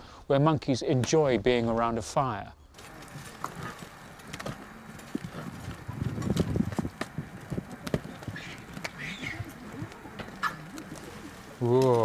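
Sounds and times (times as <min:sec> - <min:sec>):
bonfire crackling and popping: 0:02.7 - 0:12.0.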